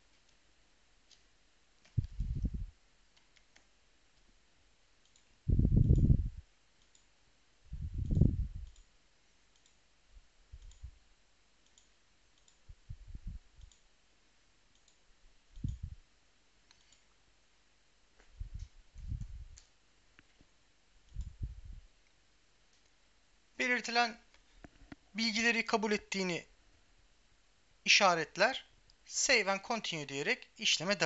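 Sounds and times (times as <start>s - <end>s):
mouse clicks and keystrokes: 1.0s - 2.5s, 3.1s - 4.3s, 5.0s - 6.1s, 6.8s - 7.2s, 8.0s - 9.8s, 10.6s - 10.9s, 11.6s - 12.7s, 13.5s - 13.9s, 14.7s - 15.9s, 16.6s - 17.2s, 21.1s - 21.4s
dull low thumps: 2.0s - 2.7s, 5.5s - 6.4s, 7.7s - 8.7s, 12.7s - 13.5s, 21.2s - 21.9s.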